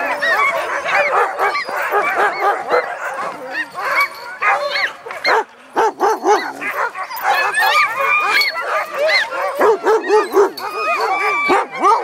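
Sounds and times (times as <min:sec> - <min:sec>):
dogs yipping and yelping: 0:00.0 - 0:12.0.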